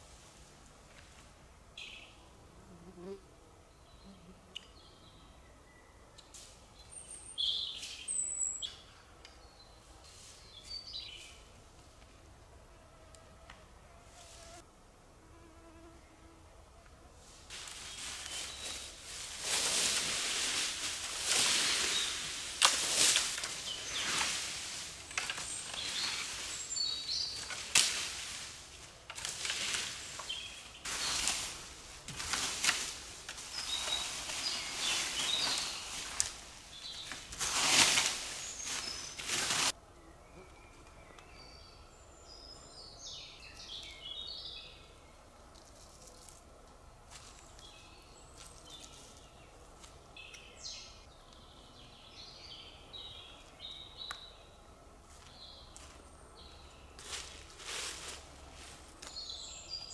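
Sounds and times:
dry leaves swept with branch: 0.0s - 1.4s, 7.6s - 8.6s, 10.0s - 11.5s, 17.2s - 39.8s, 45.5s - 46.5s, 47.1s - 50.0s, 55.1s - 56.1s, 56.8s - 59.9s
small birds chirping: 3.7s - 11.6s, 17.6s - 28.4s, 29.2s - 31.7s, 33.4s - 39.4s.

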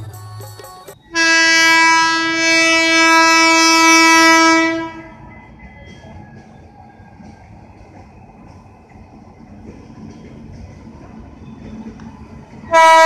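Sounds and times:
train running noise: 0.0s - 13.0s
locomotive horn blast: 1.1s - 5.2s, 12.7s - 13.0s.

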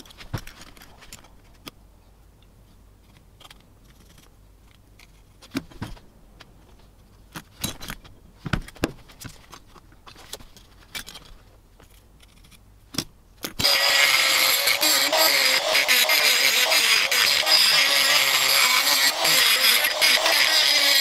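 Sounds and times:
rotary tool grinding metal: 13.6s - 21.0s.

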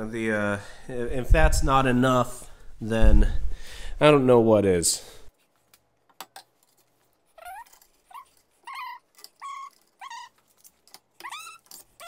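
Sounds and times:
dog whining: 7.4s - 12.0s.

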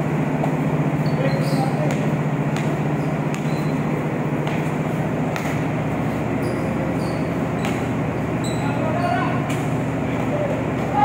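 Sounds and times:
basketball bouncing on steel floor: 0.0s - 8.6s
low hum of ship machinery: 0.0s - 11.0s.

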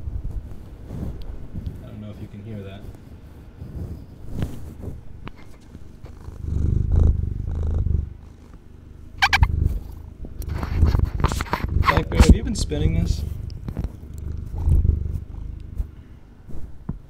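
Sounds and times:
cat purring: 0.2s - 17.0s
short high-pitched squeak: 9.2s - 9.5s
microphone bumps: 9.2s - 17.0s.

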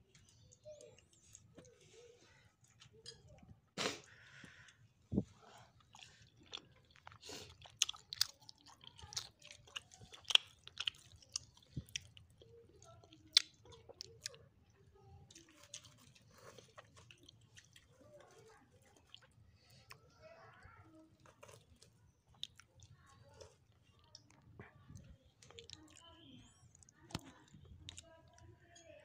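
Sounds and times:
person chewing with small crunches: 0.1s - 29.0s.

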